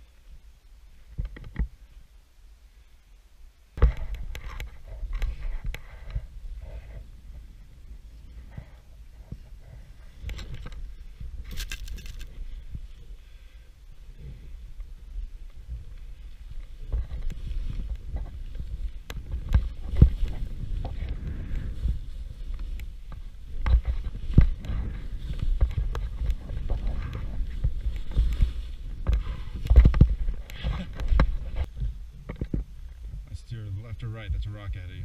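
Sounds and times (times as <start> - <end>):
wind rumble on microphone: 3.8 - 35.0.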